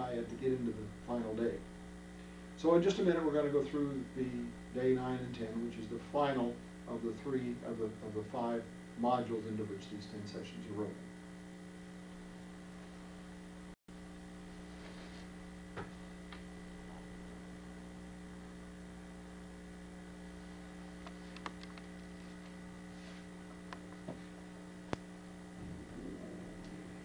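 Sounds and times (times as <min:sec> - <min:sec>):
electrical mains hum: 0:00.0 - 0:27.0
faint clicks: 0:21.0 - 0:22.6.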